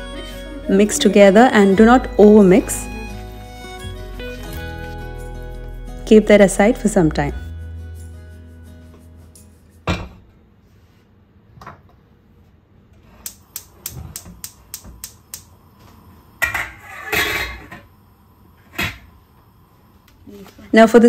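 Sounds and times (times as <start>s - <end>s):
pot knocking onto hob grate: 9.8s - 10.3s
spark igniter clicking: 13.2s - 15.6s.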